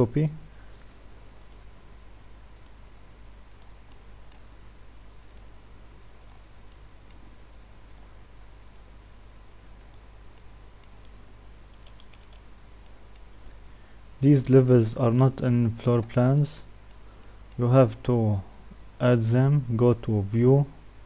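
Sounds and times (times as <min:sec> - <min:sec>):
faint low hum: 0:00.0 - 0:21.0
computer mouse clicking: 0:01.4 - 0:01.7, 0:02.6 - 0:02.8, 0:03.5 - 0:04.4, 0:05.3 - 0:05.5, 0:06.2 - 0:07.2, 0:07.9 - 0:08.9, 0:09.8 - 0:13.3.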